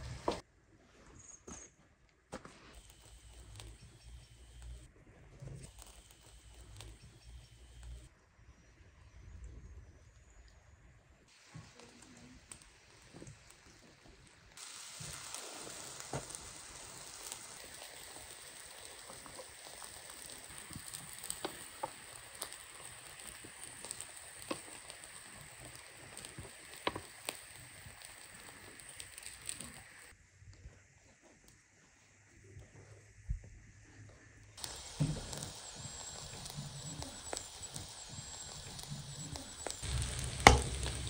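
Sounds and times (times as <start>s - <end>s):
crackles and pops: 0.0s - 0.4s, 2.6s - 8.2s, 11.3s - 30.7s, 34.6s - 41.0s
kebabs sizzling on a grill: 0.0s - 0.4s, 2.7s - 4.9s, 5.6s - 8.1s, 11.3s - 30.2s, 34.6s - 41.0s.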